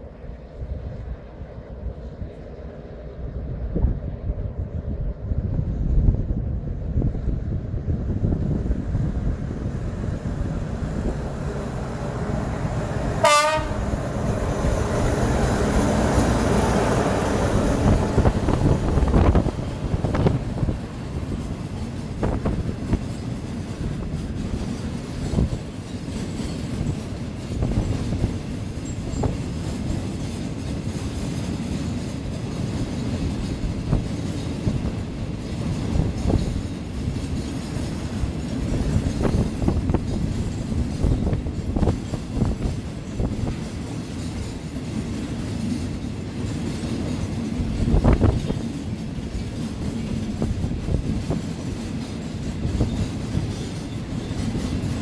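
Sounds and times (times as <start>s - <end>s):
train wheels clicking over rail joints: 10.0s - 55.0s
train horn blast: 13.1s - 14.2s.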